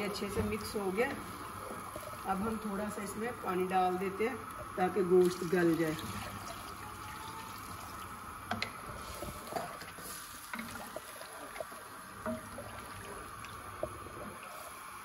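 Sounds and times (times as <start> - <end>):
water pouring into a pot: 4.6 - 15.0.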